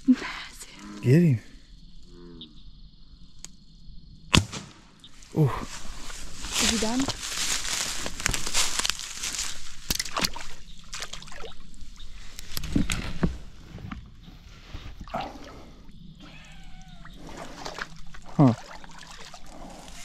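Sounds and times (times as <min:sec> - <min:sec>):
feet sloshing through water: 0:05.9 - 0:11.8, 0:16.9 - 0:20.0
water splashing and dripping: 0:08.2 - 0:11.8, 0:16.7 - 0:20.0.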